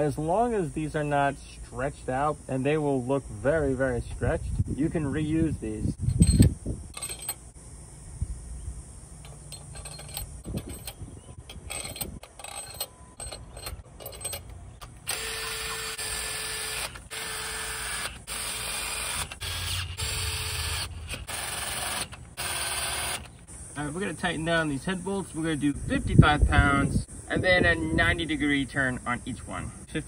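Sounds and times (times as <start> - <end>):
power driver spinning: 6.0 - 7.5, 9.2 - 23.5
bolts dropping with metal clicks: 6.9 - 7.5, 9.2 - 15.2.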